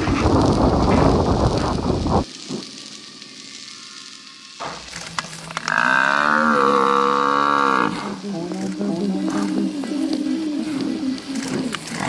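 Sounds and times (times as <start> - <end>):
animal bellowing: 5.6 - 12.0
soft wavering animal call: 5.6 - 12.0.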